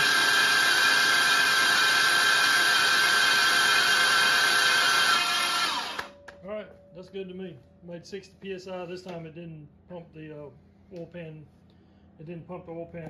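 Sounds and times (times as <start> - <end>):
electric drill whining: 0.0 - 6.2.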